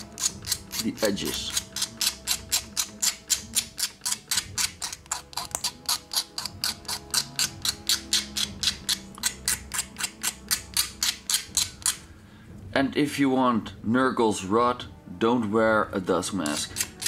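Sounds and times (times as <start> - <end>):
sanding stick scratching plastic: 0.0 - 12.0.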